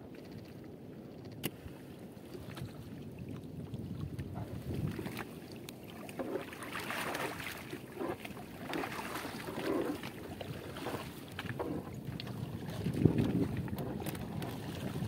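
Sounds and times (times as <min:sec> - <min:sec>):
sea water splashing against boat: 0:01.4 - 0:15.0
wind buffeting microphone: 0:01.5 - 0:06.2, 0:09.4 - 0:15.0
short splashes and knocks: 0:04.0 - 0:15.0.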